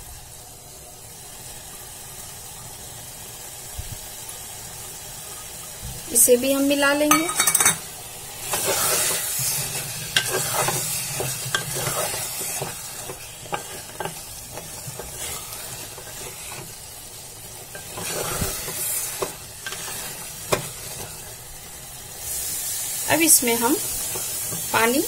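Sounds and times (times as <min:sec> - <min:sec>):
food sizzling: 0:00.0 - 0:25.0
spatula scraping in pot: 0:07.1 - 0:21.5, 0:23.4 - 0:25.0.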